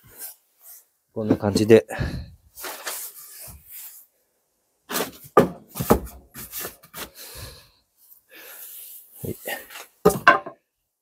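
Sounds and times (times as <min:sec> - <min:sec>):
wooden boards knocking and scraping: 0:04.9 - 0:06.6, 0:10.0 - 0:10.6.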